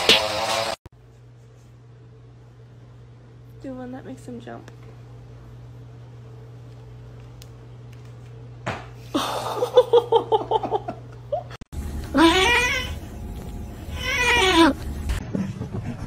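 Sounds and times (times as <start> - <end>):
cat yowling: 12.2 - 13.0, 13.9 - 14.8.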